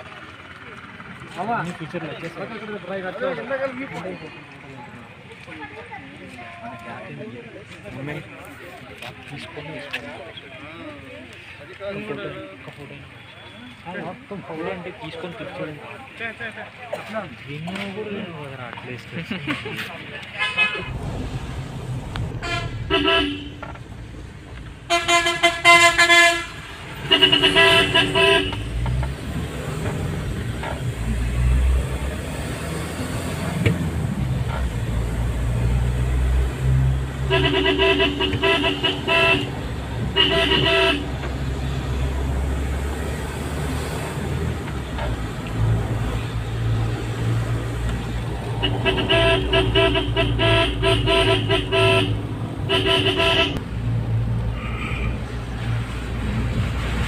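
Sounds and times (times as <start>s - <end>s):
engine humming: 15.4s - 57.0s
vehicle horn blasts: 22.4s - 23.7s, 24.9s - 28.8s, 37.3s - 41.2s, 48.6s - 53.6s.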